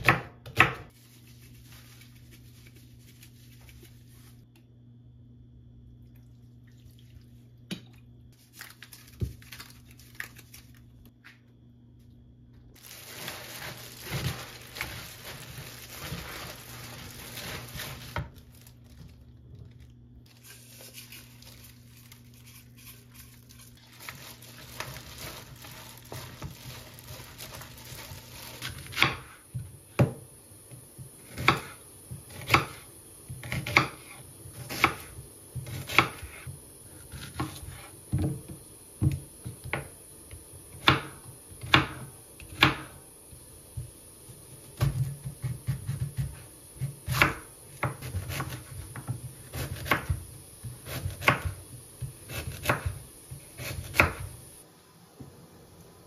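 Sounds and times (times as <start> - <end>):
plastic gloves crinkling: 0.9 - 4.4, 8.4 - 11.1, 12.8 - 29.2
wet squishing of cabbage: 12.8 - 29.0
knife chopping on wooden board: 44.8 - 54.3.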